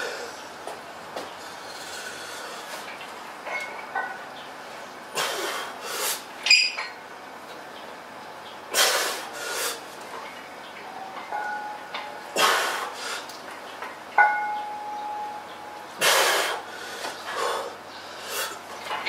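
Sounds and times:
barbell plates clanking: 0:03.4 - 0:04.3.

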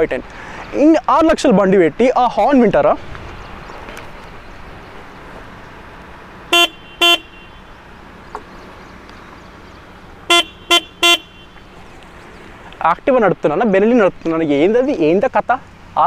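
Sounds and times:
motorcycle horn short beeps: 0:06.5 - 0:07.8, 0:10.3 - 0:11.7.

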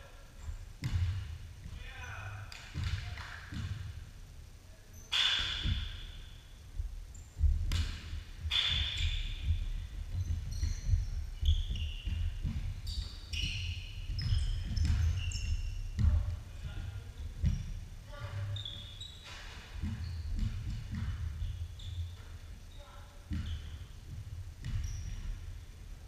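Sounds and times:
sneakers squeaking: 0:00.0 - 0:26.0
basketball dribbling on hardwood: 0:00.4 - 0:01.8, 0:02.8 - 0:04.0, 0:06.7 - 0:19.0, 0:19.8 - 0:22.4, 0:23.3 - 0:25.6
sharp knocks echoing: 0:05.1 - 0:06.2.

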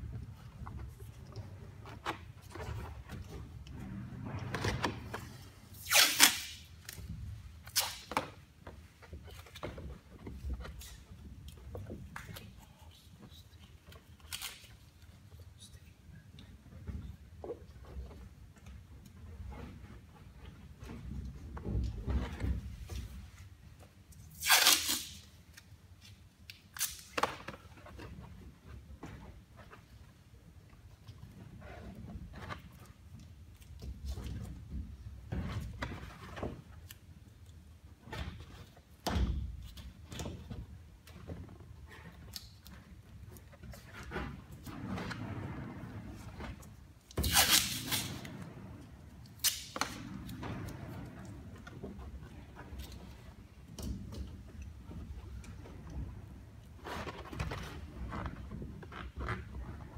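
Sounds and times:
adhesive tape ripping off roll: 0:05.7 - 0:08.3, 0:14.2 - 0:14.8, 0:24.3 - 0:25.6, 0:26.7 - 0:27.4, 0:47.2 - 0:48.2, 0:49.3 - 0:50.0.

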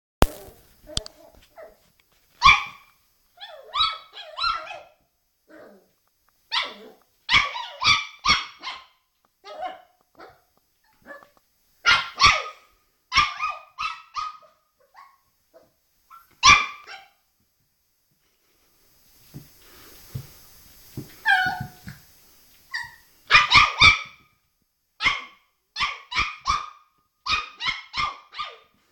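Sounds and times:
puppy yapping: 0:02.4 - 0:05.8, 0:06.5 - 0:17.2, 0:21.2 - 0:21.8, 0:22.7 - 0:24.2, 0:25.0 - 0:28.7.

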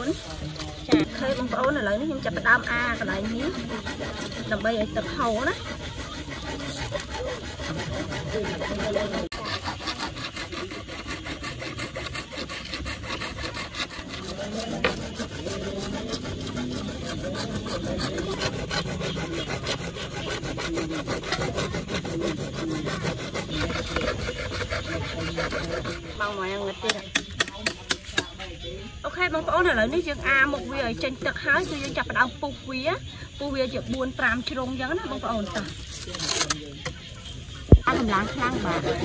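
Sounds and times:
hand saw cutting plastic pipe: 0:00.0 - 0:28.2, 0:37.7 - 0:39.0.

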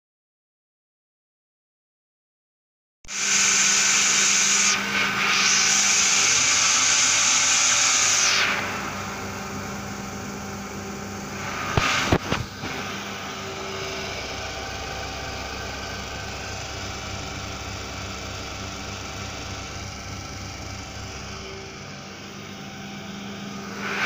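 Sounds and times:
loud hiss: 0:03.1 - 0:15.2
vacuum pump running: 0:03.1 - 0:24.0.

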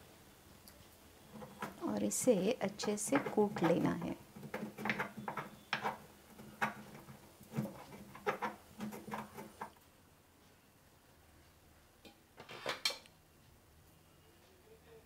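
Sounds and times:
stone pestle pounding in mortar: 0:01.4 - 0:09.6.

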